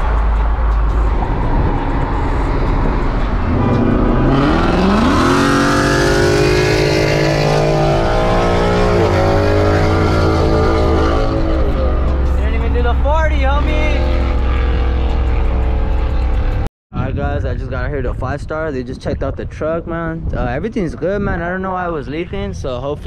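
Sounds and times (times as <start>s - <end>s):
truck engine pulling hard: 0.0s - 16.7s.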